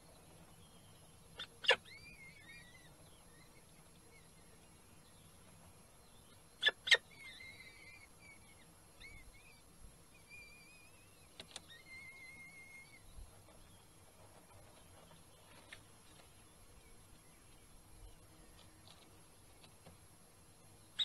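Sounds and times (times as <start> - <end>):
falcon chicks begging cheeps: 1.4 - 2.9, 6.6 - 8.4
sharp clicks: 11.3 - 11.7.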